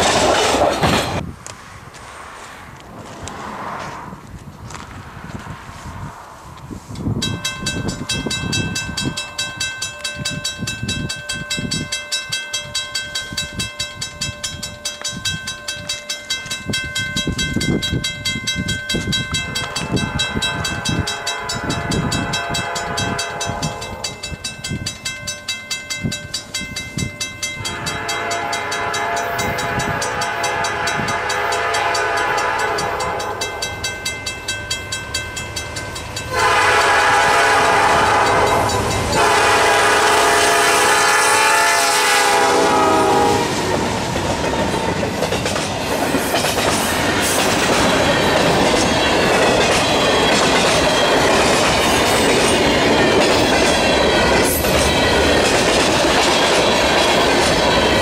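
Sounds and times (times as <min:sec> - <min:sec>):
train rumble: 0:00.0 - 0:58.0
train air horn blasts: 0:19.9 - 0:24.2, 0:27.6 - 0:33.6, 0:36.3 - 0:43.9.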